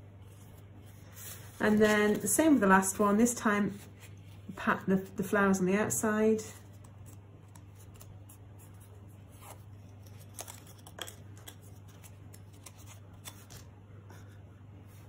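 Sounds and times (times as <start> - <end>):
paper rustling: 0.2 - 5.3, 6.6 - 13.7.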